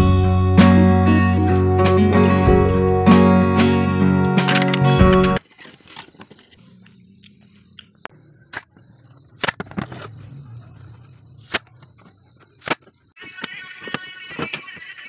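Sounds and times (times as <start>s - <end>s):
music: 0.0s - 5.4s.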